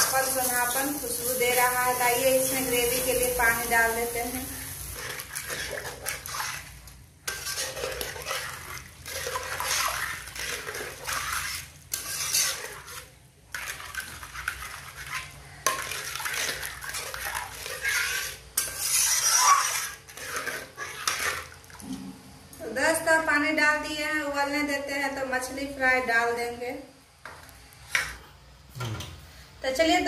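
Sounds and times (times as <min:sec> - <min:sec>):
metal spatula scraping a pan: 0:00.0 - 0:21.6
liquid sloshing in a pan: 0:00.0 - 0:22.4.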